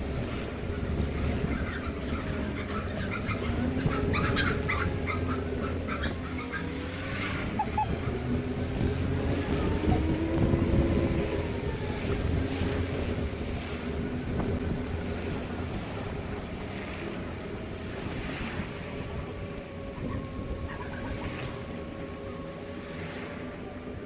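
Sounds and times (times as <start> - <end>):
wind noise: 0.0 - 22.2
road rumble: 0.0 - 24.0
faint engine tone: 6.0 - 10.5
short sharp high-pitched sounds: 7.6 - 8.0.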